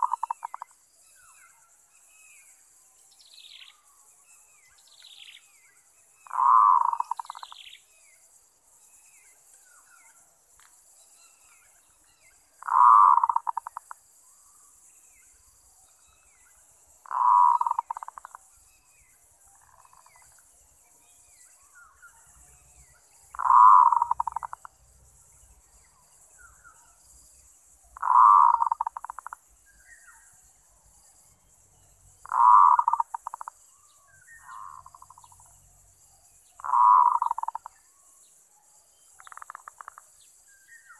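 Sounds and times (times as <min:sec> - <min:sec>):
dove cooing: 0:00.0 - 0:00.6, 0:06.3 - 0:07.5, 0:12.6 - 0:13.9, 0:17.1 - 0:18.3, 0:23.4 - 0:24.6, 0:28.0 - 0:29.3, 0:32.3 - 0:33.5, 0:36.6 - 0:37.7.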